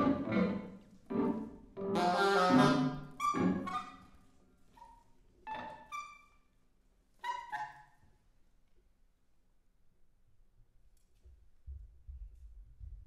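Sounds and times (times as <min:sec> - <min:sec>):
chamber ensemble music: 0:00.0 - 0:04.0.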